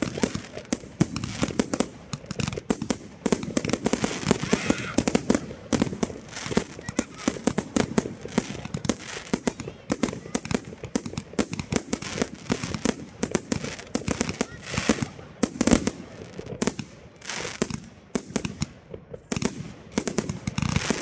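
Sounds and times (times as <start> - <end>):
fireworks bangs and crackles: 0.0 - 21.0.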